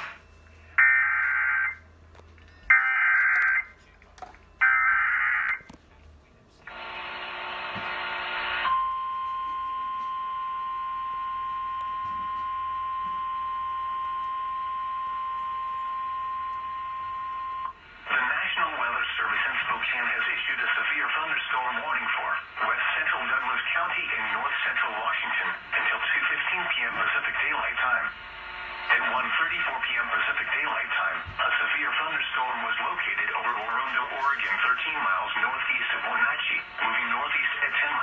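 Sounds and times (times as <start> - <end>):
harsh buzzing tone: 6.7 - 9.2.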